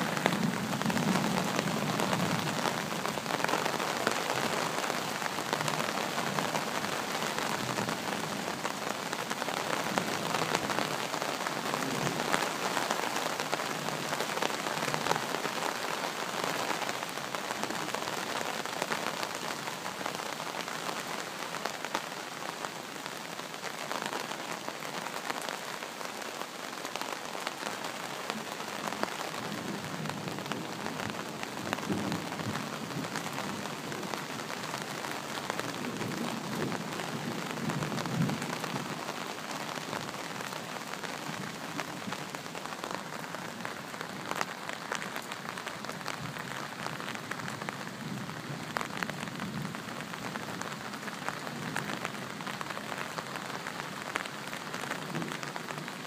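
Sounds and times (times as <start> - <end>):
steady rain falling: 0.0 - 56.0.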